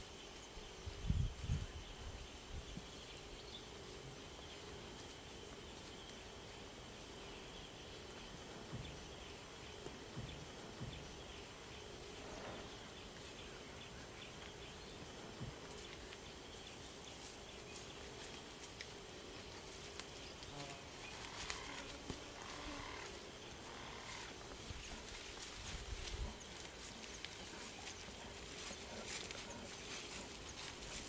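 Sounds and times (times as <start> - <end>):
dull low thumps: 8.4 - 9.3, 10.0 - 11.4, 15.0 - 15.7
high insect drone: 14.8 - 31.0.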